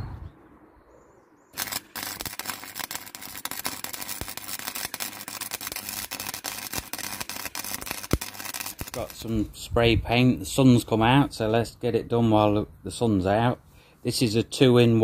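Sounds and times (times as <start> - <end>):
welder arc crackling: 1.6 - 9.7.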